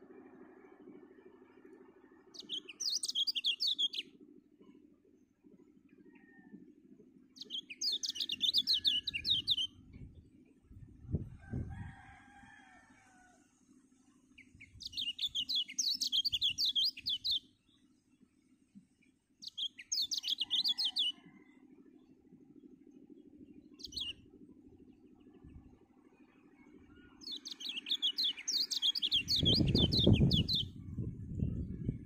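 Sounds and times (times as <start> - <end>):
bird chirping rapidly: 27.2 - 30.8.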